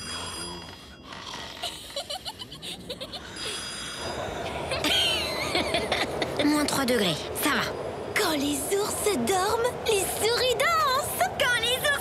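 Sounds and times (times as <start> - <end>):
wind whistling: 3.1 - 12.0.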